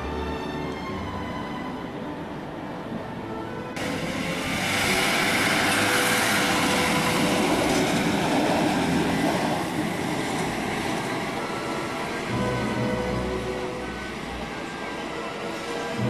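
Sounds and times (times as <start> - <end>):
railcar wheels running on rails: 0.0 - 16.0.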